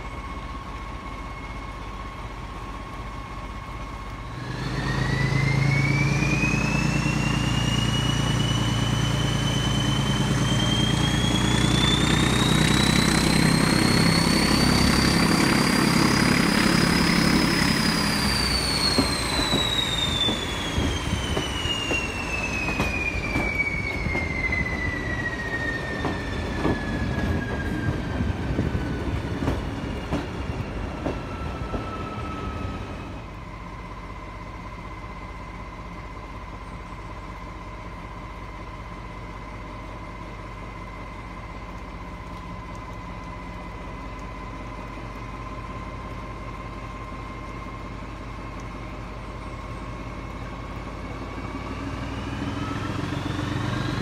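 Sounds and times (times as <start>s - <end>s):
diesel locomotive engine: 0.0s - 54.0s
turbocharger whistle: 4.3s - 28.2s
wheels clicking over rail joints: 25.8s - 31.9s.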